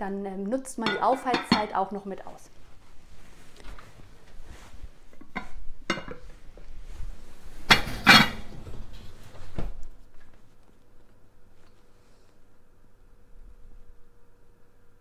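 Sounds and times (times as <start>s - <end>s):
pot and oven door clatter: 0.8s - 1.8s, 7.7s - 8.6s.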